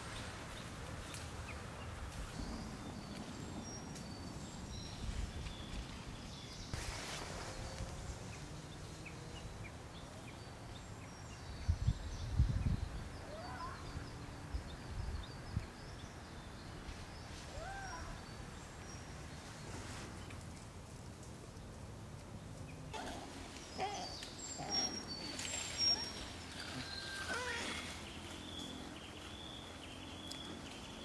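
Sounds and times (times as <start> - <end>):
small birds chirping: 22.5 - 31.0.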